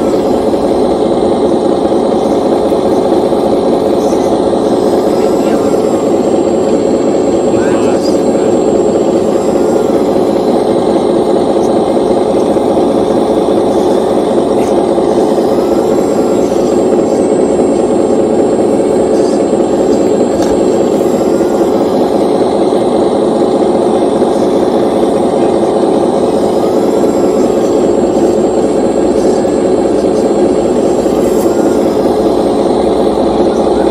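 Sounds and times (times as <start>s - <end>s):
toy excavator hydraulic hum: 0.0s - 33.9s.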